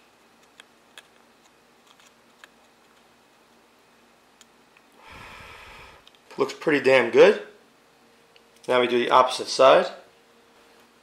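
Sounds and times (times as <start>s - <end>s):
breathy exhale: 5.0s - 6.1s.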